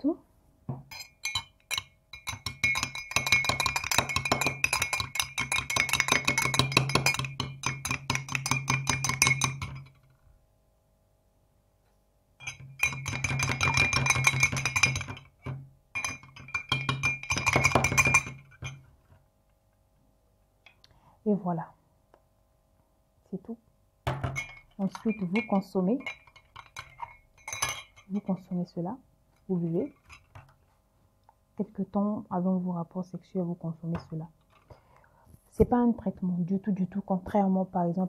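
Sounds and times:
spoon clinking against glass: 0:00.9 - 0:10.0, 0:12.4 - 0:18.8, 0:24.2 - 0:28.3.

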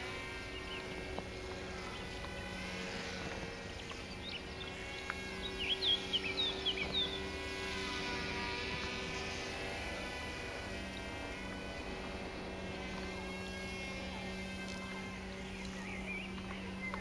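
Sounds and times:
toy plane motors buzzing: 0:00.0 - 0:17.0
bird chirps: 0:03.5 - 0:07.3, 0:15.2 - 0:17.0.

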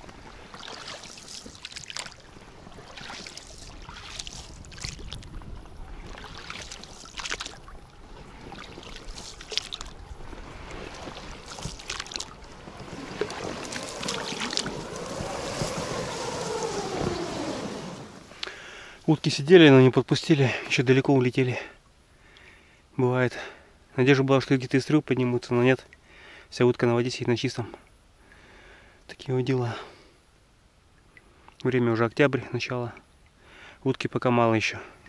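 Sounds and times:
paddle splashes and knocks: 0:00.0 - 0:18.6.

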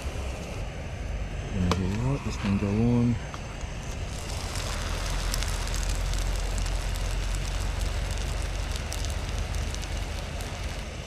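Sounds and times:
gas stove hissing: 0:00.0 - 0:11.0
light crackles: 0:03.3 - 0:11.0.

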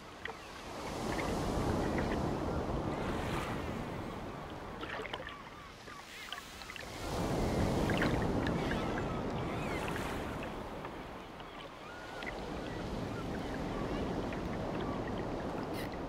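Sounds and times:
ocean surf washing ashore: 0:00.0 - 0:16.0.

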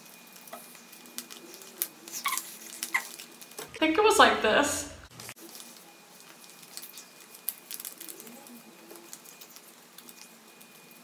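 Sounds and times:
paper rustling and crinkling: 0:05.1 - 0:11.0.

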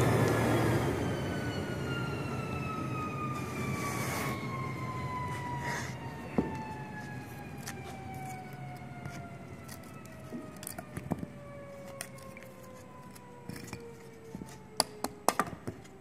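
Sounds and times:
motor whine spinning down: 0:00.0 - 0:10.6.

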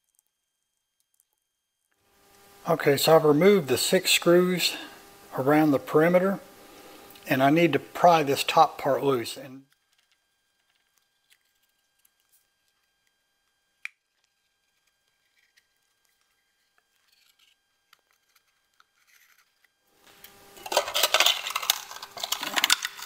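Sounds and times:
plastic scraping and crackling: 0:09.7 - 0:19.8, 0:20.6 - 0:23.0.

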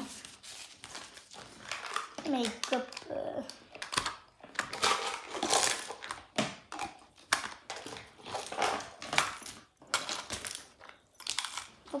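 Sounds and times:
plastic items rustling: 0:00.0 - 0:12.0
plastic items clicking: 0:01.5 - 0:12.0.

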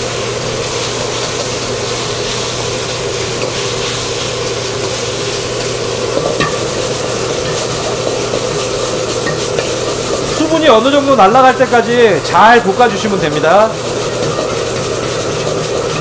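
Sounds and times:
meat sizzling in a wok: 0:00.0 - 0:16.0
utensil scraping a wok: 0:00.2 - 0:16.0.

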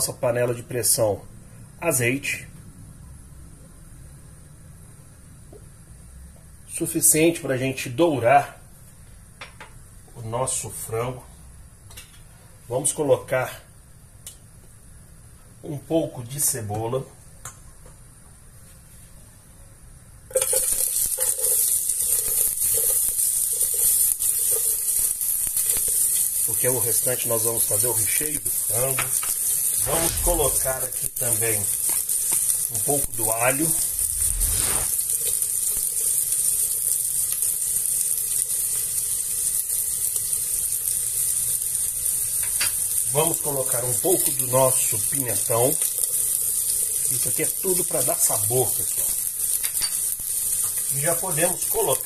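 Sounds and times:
onion sizzling in hot oil: 0:20.2 - 0:52.0.

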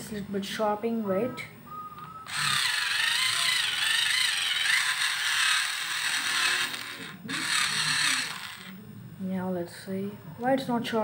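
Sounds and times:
pencil sharpener motor grinding: 0:02.2 - 0:08.8.

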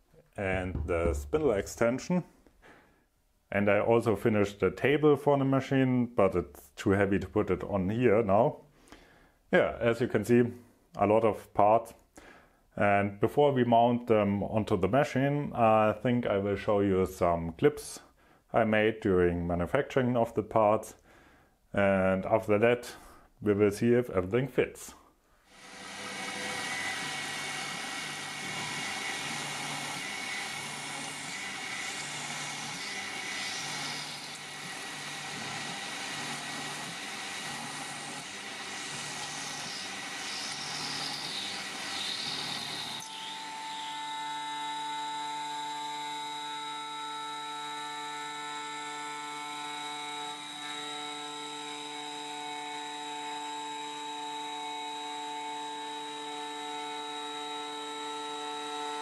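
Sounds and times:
milling machine cutting metal: 0:25.5 - 0:59.0.

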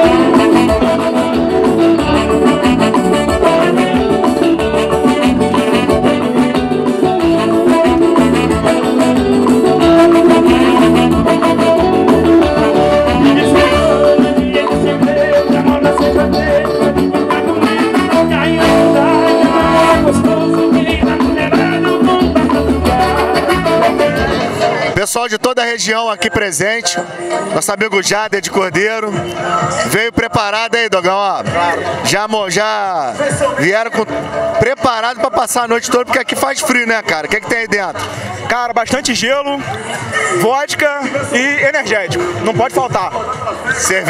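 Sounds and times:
man singing: 0:00.0 - 0:09.1, 0:09.7 - 0:26.3
live band dance music: 0:00.0 - 0:44.0.

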